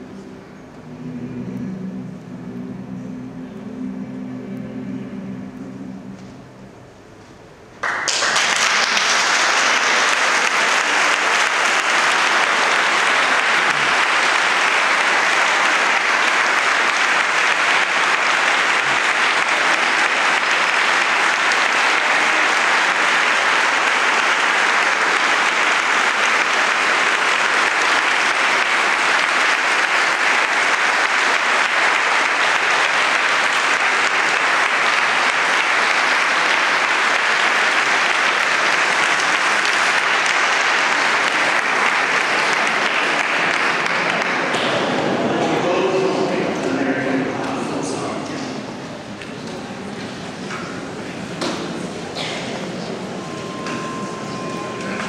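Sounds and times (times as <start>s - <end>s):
large audience applauding: 7.8s - 50.9s, 51.5s - 55.0s.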